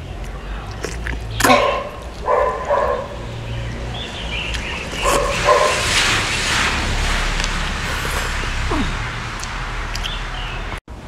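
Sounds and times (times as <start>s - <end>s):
slurping noodles: 0.6s - 2.3s, 4.5s - 10.2s
dog barking: 1.4s - 3.3s, 5.0s - 6.0s.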